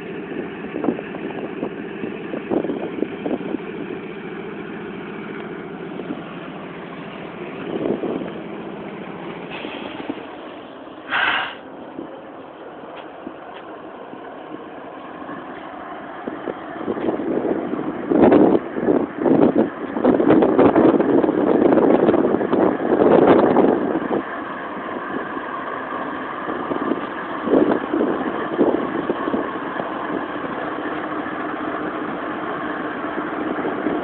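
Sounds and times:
locomotive engine droning: 0.0s - 34.0s
burst of hiss: 11.1s - 11.6s.

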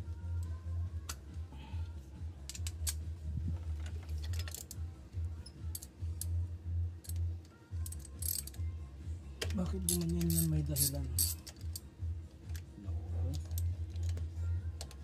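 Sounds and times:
low hum: 0.0s - 9.2s
metal tools clicking: 2.5s - 3.0s, 3.8s - 4.8s, 5.4s - 6.4s, 7.0s - 7.2s, 7.8s - 8.6s, 9.4s - 11.8s, 13.3s - 14.2s.

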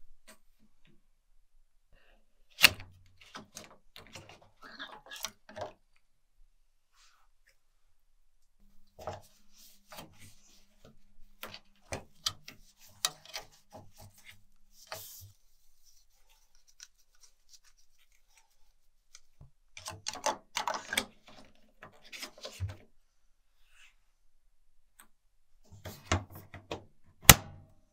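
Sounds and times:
paper towel rubbing plastic: 12.5s - 19.1s
plastic parts clicking: 19.1s - 22.8s.

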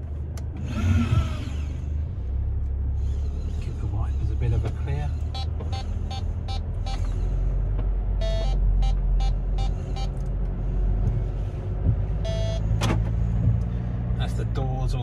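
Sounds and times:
engine rumbling: 0.0s - 15.0s
low warning tone: 0.6s - 7.4s, 8.1s - 13.8s
parking sensor beeps: 5.2s - 7.2s, 8.2s - 10.2s, 12.2s - 12.7s.

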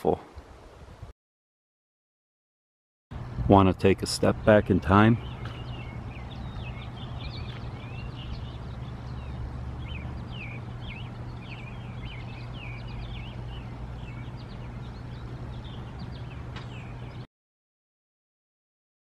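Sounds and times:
birds chirping: 3.2s - 17.3s
steady low hum: 3.2s - 17.3s.

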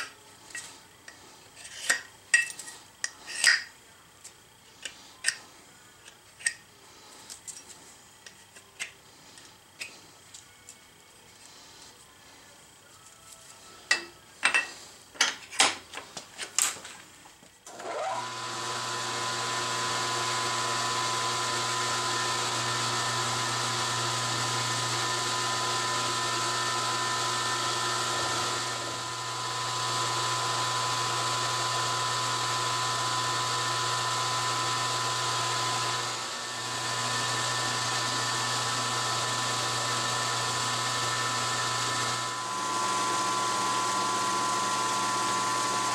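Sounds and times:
milling machine cutting aluminum: 17.7s - 45.9s.

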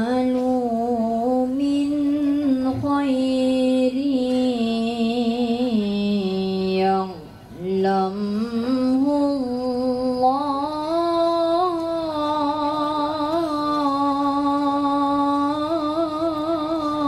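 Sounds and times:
boy reciting melodically: 0.0s - 17.0s.

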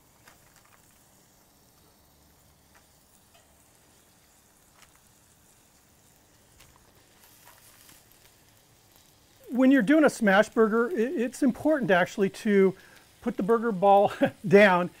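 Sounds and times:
meat sizzling on a griddle: 0.0s - 15.0s
small ticks: 0.2s - 2.0s, 2.6s - 3.6s, 4.6s - 9.1s.

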